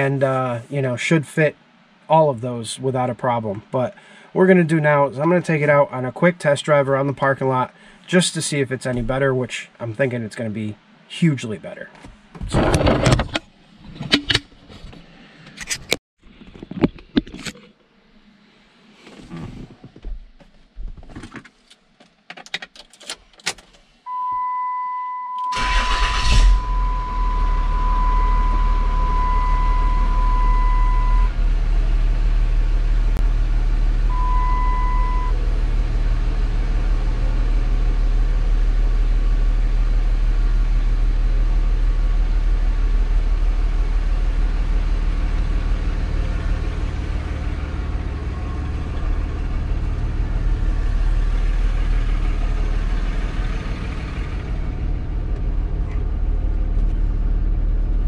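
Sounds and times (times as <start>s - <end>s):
high warning chime: 24.1s - 31.3s
diesel engine cranking: 25.5s - 38.5s, 44.2s - 58.0s
diesel engine running: 25.5s - 58.0s.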